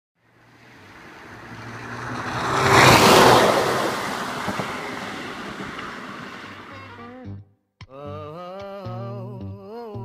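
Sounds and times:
car driving fast past: 0.3 - 7.1.

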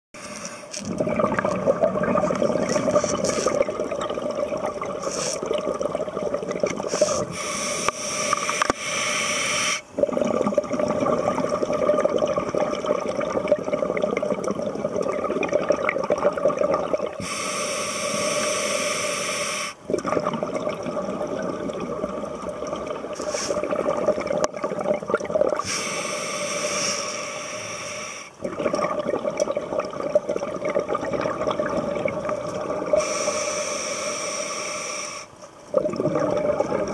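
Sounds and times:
bubbling exhalation underwater: 0.8 - 7.4, 9.9 - 17.2, 19.8 - 25.7, 28.4 - 33.1, 35.7 - 36.9
regulator hissing inhalation: 5.0 - 5.4, 6.8 - 9.9, 17.2 - 19.8, 23.2 - 23.7, 25.6 - 28.4, 33.0 - 35.4.

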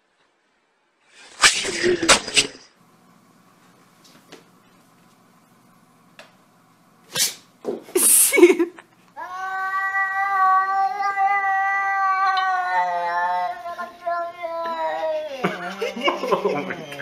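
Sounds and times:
cat yowling: 9.2 - 14.8.

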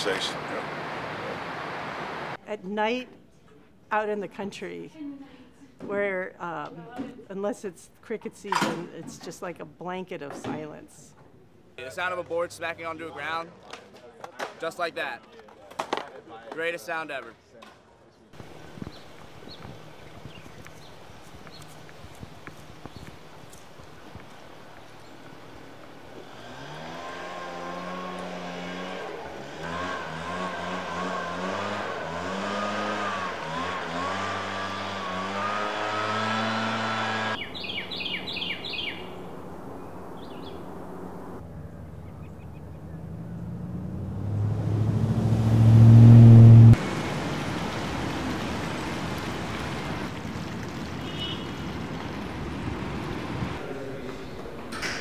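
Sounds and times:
vehicle approaching: 0.0 - 2.4, 18.4 - 53.9
bird chirps: 37.4 - 40.7, 41.6 - 43.5
engine pitch stepping up and down: 41.5 - 46.8.

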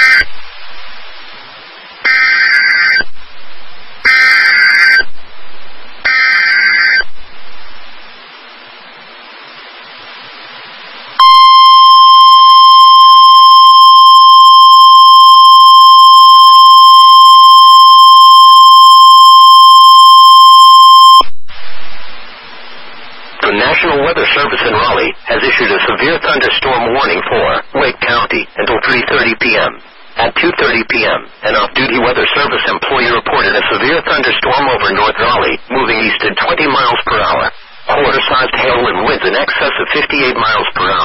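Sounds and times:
radio hiss: 0.0 - 41.0
steady warning alarm tone: 11.2 - 21.3.

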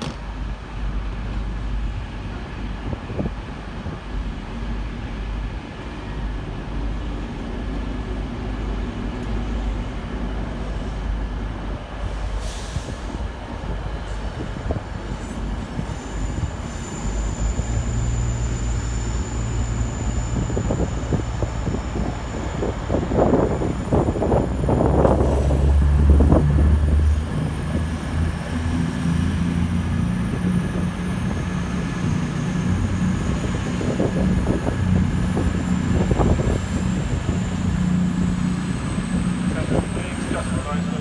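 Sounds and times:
diesel train engine drone: 0.0 - 41.0
high wheel squeal: 15.3 - 24.2.

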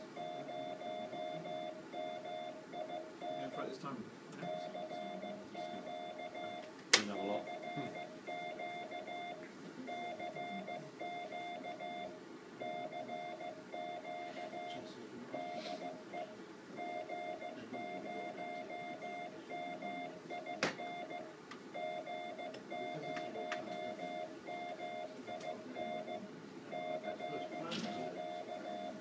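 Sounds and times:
morse code beep tone: 0.2 - 3.6, 4.4 - 6.6, 7.2 - 14.8, 15.4 - 29.0.

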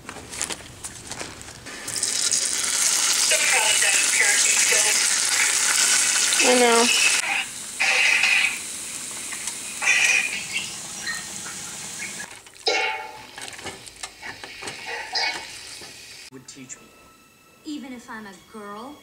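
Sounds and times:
tofu sizzling in hot oil: 1.7 - 12.4
stirring and scraping in pan: 12.2 - 16.0.

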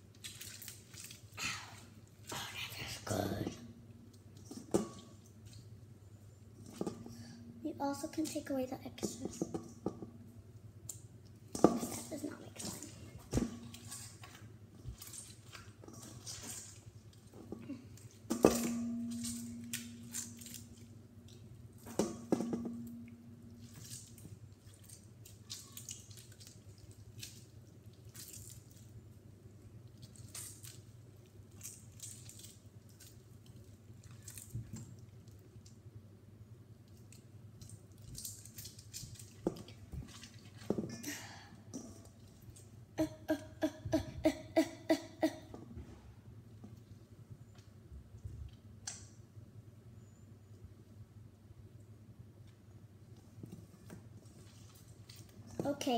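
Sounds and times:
metal bowl knocked and ringing: 18.4 - 20.1, 22.0 - 23.2.

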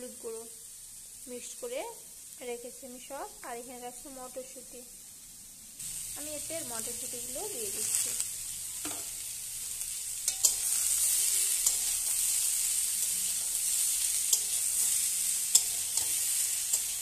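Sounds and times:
vegetables sizzling in hot oil: 0.0 - 17.0
metal spatula scraping a pan: 8.8 - 17.0
spatula clicking against pan: 15.5 - 17.0.

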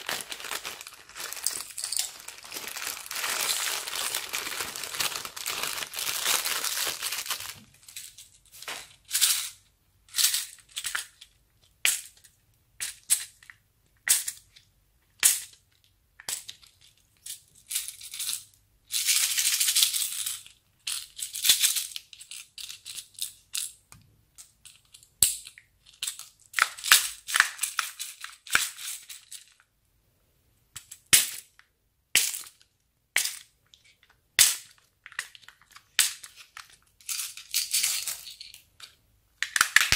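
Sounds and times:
beads pouring: 0.0 - 8.0
plastic pieces dropping into glass bowl: 0.0 - 8.8
plastic bag crinkling: 0.0 - 9.0.

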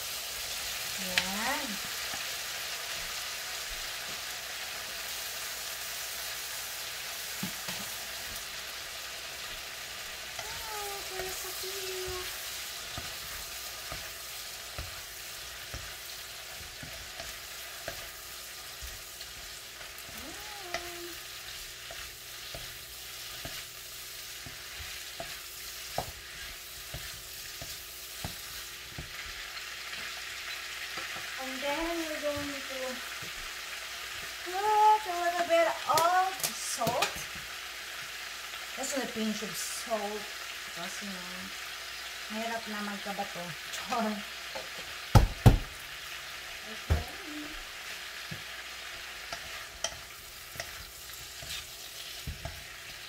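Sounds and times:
vegetables sizzling in oil: 0.0 - 53.0
spatula scraping a pan: 9.4 - 34.3, 47.8 - 53.0.

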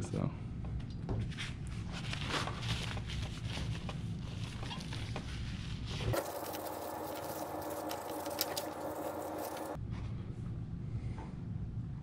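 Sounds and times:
low background hum: 0.0 - 12.0
paper towel rubbing on glass: 1.9 - 9.8.

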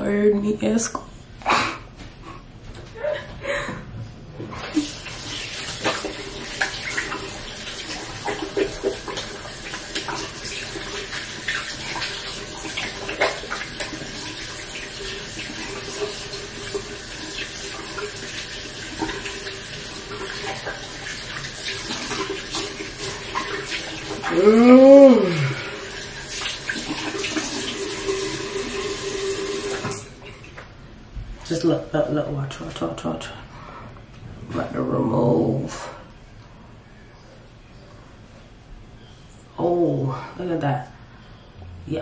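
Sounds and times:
water splashing: 4.5 - 30.1
sink tap running: 4.5 - 30.2.

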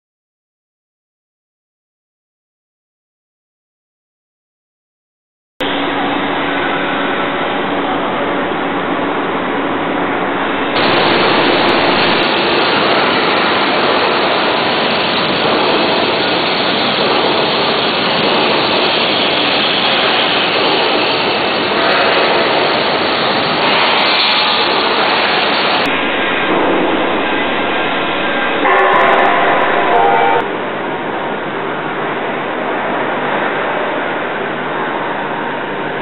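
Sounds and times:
steel workshop hiss-like noise: 10.5 - 30.4.

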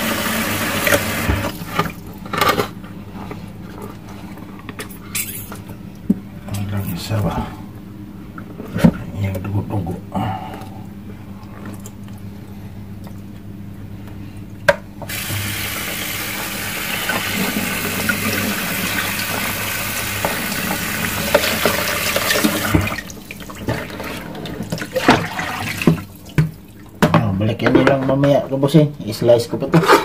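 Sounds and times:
tap water running into sink: 0.0 - 2.0, 15.1 - 26.6.

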